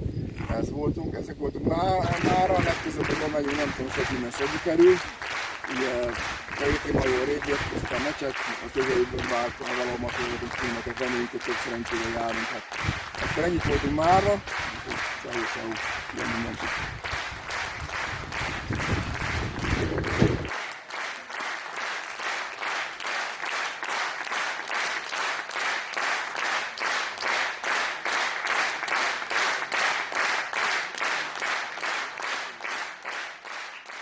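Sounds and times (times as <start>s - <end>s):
wind rumbling on microphone: 0.0s - 4.8s, 5.9s - 8.1s, 12.7s - 15.0s, 15.8s - 20.5s
rhythmic unison applause: 1.7s - 34.0s.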